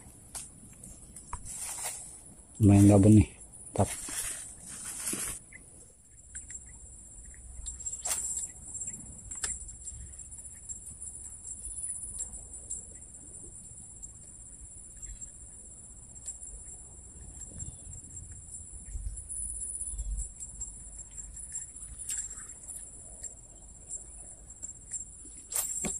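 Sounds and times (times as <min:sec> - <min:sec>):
insects chirring: 0:00.0 - 0:25.9.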